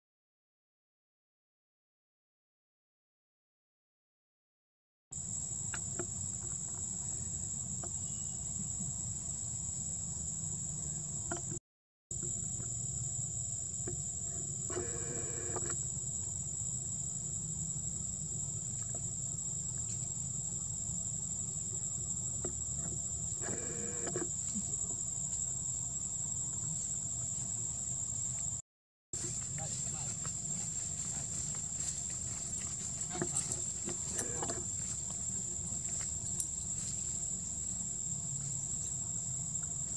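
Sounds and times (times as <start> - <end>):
insects droning: 5.2 - 28.6, 29.2 - 39.9
low outdoor rumble: 29.2 - 39.9.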